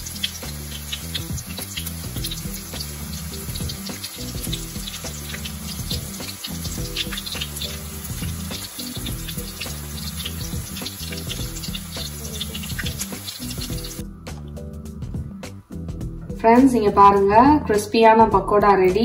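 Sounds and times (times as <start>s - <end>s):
oil sizzling and popping: 0.0s - 14.6s
soft background music: 0.0s - 19.0s.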